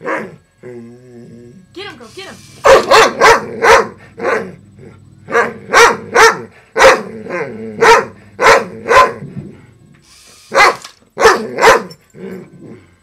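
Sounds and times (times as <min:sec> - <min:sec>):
large dog barking: 0:02.6 - 0:04.7, 0:05.3 - 0:09.2, 0:10.5 - 0:12.0.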